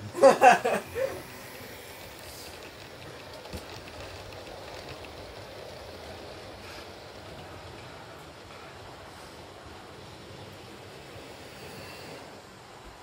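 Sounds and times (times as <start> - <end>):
model train wheels on track: 0.0 - 13.0.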